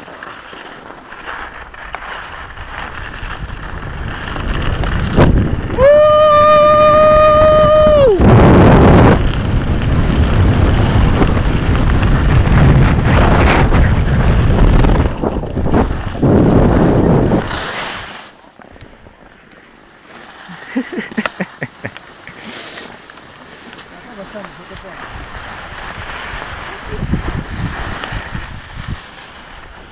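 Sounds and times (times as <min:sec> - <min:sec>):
skis running on snow: 0:00.0 - 0:29.9
wind buffeting microphone: 0:02.4 - 0:17.6, 0:25.1 - 0:29.9.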